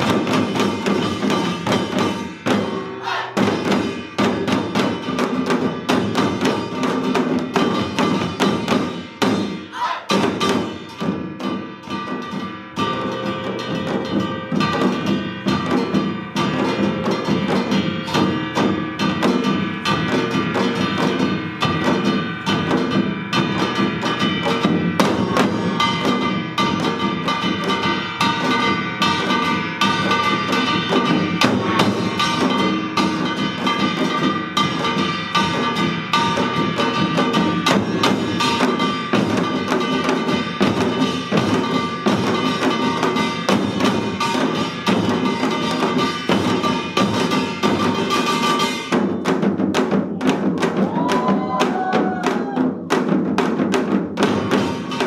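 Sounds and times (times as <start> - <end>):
drums struck with sticks: 0.0 - 55.0
gongs ringing: 9.2 - 48.9.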